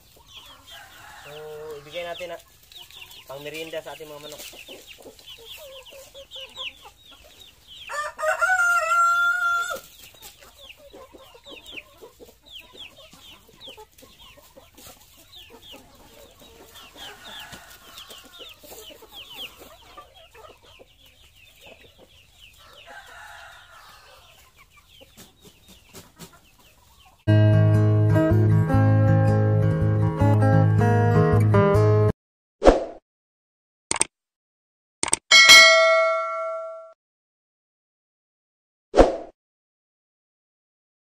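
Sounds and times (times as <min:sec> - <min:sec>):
rustling of straw and feed sack: 0:00.0 - 0:08.0, 0:09.1 - 0:27.2
chickens clucking: 0:00.0 - 0:27.3
chicks cheeping: 0:00.0 - 0:27.3
rooster crowing: 0:00.6 - 0:02.0, 0:07.9 - 0:09.8, 0:16.9 - 0:18.4, 0:22.6 - 0:24.4.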